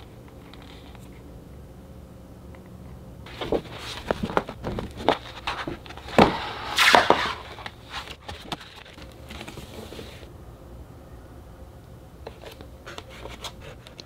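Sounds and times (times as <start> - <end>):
paper pages flapping and rustling: 3.3 - 10.3.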